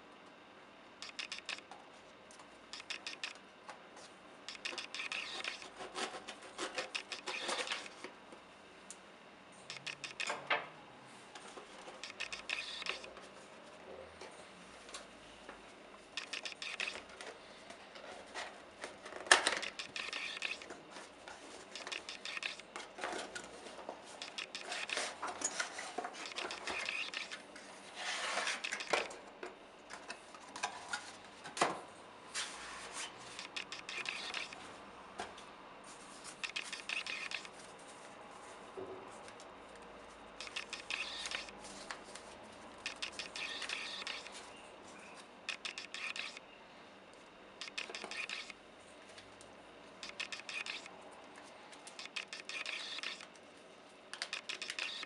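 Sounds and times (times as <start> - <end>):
packaging rustling and scraping: 17.1 - 29.0.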